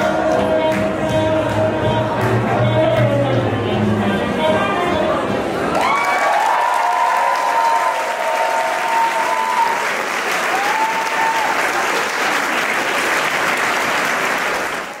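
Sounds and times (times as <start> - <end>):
audience applauding: 5.7 - 15.0
audience cheering: 5.7 - 15.0.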